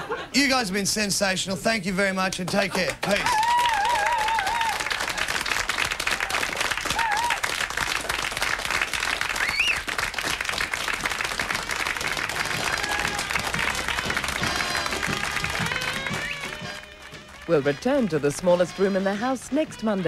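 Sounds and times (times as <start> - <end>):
audience applauding: 2.5 - 18.8
whistles: 9.4 - 9.9.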